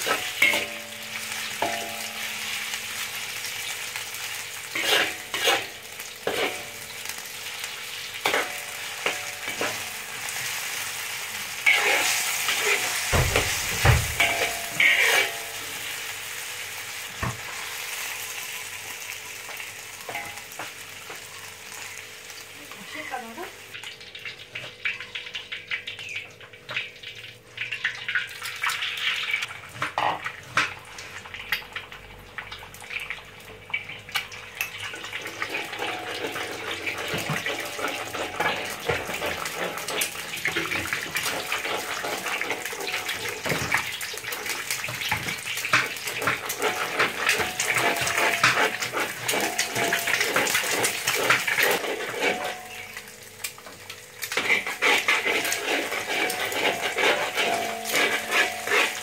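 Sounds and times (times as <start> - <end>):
spatula stirring in wok: 0.0 - 16.1, 35.2 - 59.0
eggs sizzling in hot oil: 0.0 - 59.0.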